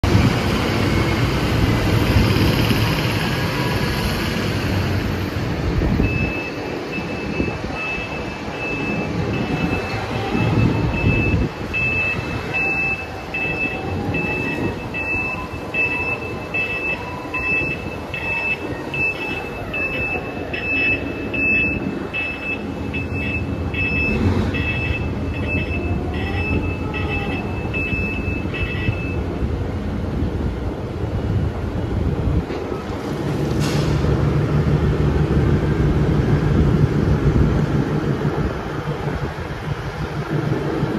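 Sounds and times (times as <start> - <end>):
reversing alarm beeping: 6.0 - 29.4.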